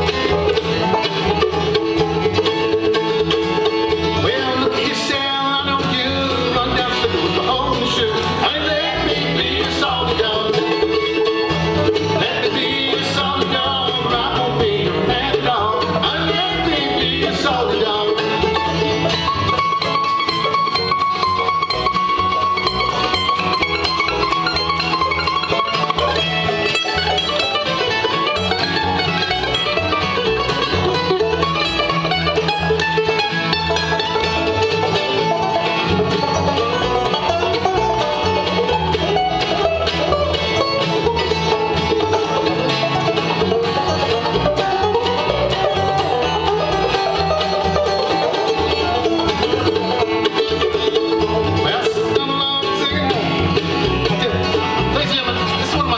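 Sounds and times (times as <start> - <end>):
bluegrass band playing: 0.0 - 55.9.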